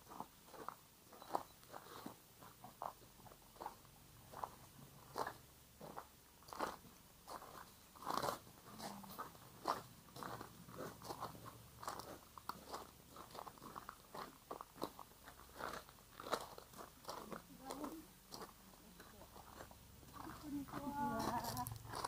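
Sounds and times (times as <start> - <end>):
footsteps crunching on gravel: 0.0 - 22.0.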